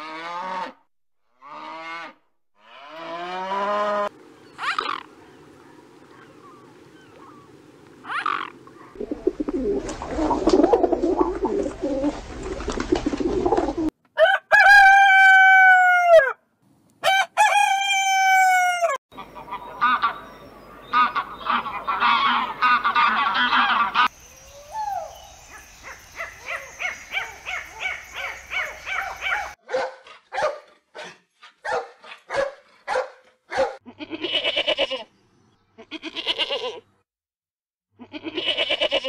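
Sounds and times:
goose honking: 0:20.9 - 0:24.1
dog barking: 0:25.5 - 0:33.8
goat bleating: 0:33.8 - 0:35.1, 0:35.8 - 0:36.9, 0:38.0 - 0:39.0.

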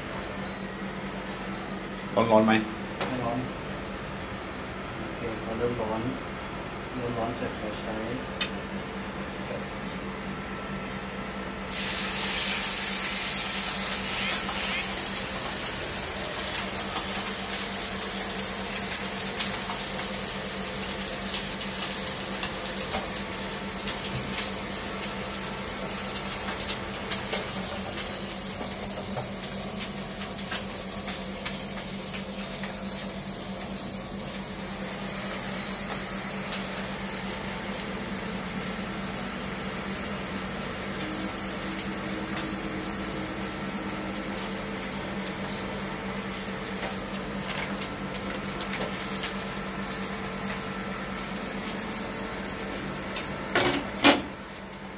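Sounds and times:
cooktop hum: 0:00.0 - 0:54.9
meat sizzling in oil: 0:11.6 - 0:54.9.

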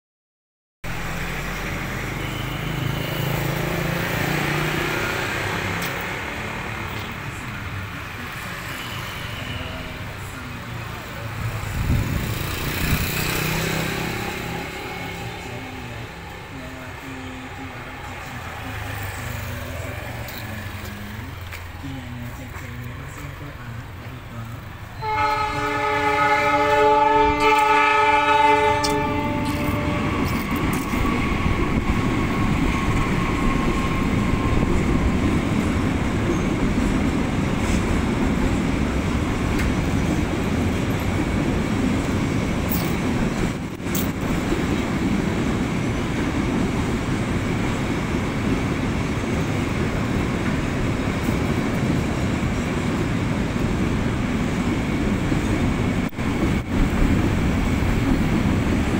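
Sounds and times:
freight train rumbling past: 0:00.8 - 0:58.9
train horn chord: 0:25.0 - 0:30.4.

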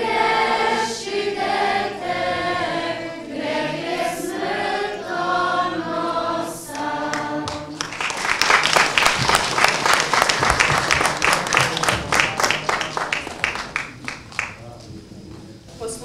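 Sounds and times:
choir singing: 0:00.0 - 0:08.0
audience applause: 0:06.7 - 0:14.7.

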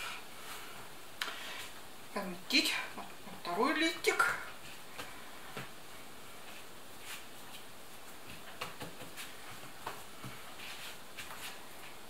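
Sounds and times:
steady background hiss: 0:00.0 - 0:12.0
hands working dough: 0:04.1 - 0:12.0.

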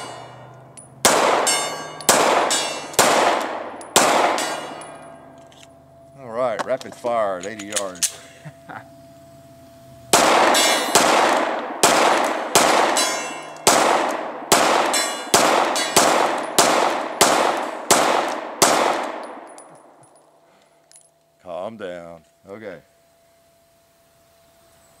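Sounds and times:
steel gong clanging: 0:00.0 - 0:03.0, 0:03.8 - 0:06.4, 0:13.0 - 0:13.7
pistol shots echoing: 0:00.0 - 0:05.2, 0:10.1 - 0:19.6.

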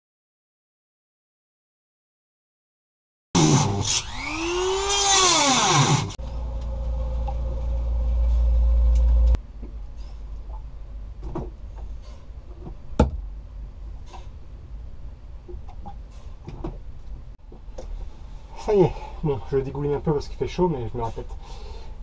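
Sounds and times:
electric drill motor: 0:03.4 - 0:06.2.

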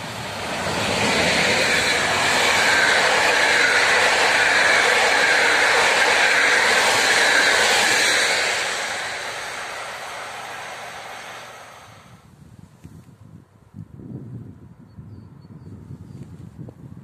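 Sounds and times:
train coaches rolling past: 0:00.0 - 0:12.2.

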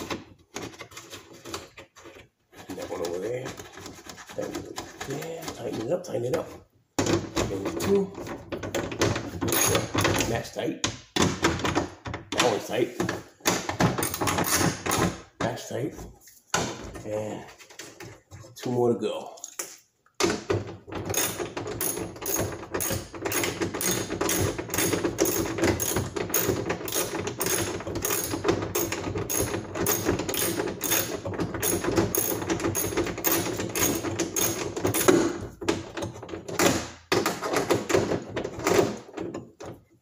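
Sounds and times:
hand ratchet clicking: 0:21.1 - 0:35.2.

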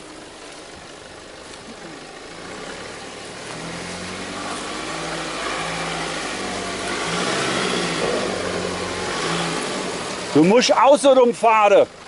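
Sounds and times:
vehicle engine approaching: 0:00.0 - 0:11.1.

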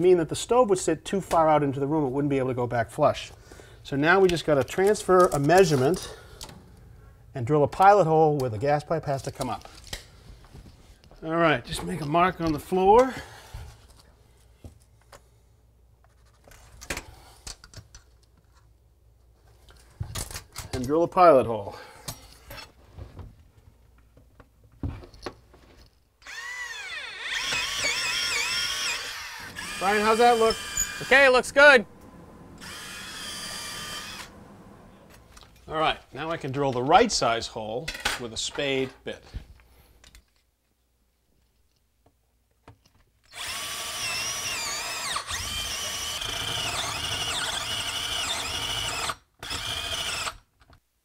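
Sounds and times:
cordless drill motor whine: 0:26.2 - 0:35.5, 0:43.3 - 0:50.4.

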